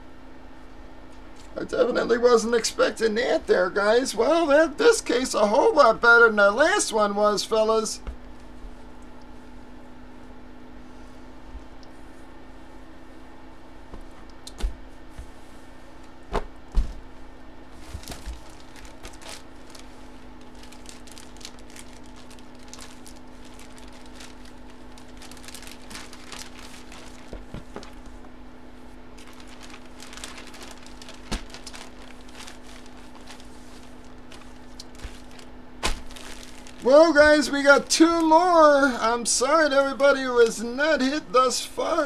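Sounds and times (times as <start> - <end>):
steady hum: 0.0 - 42.0
fabric rustling and crinkling: 13.8 - 38.9.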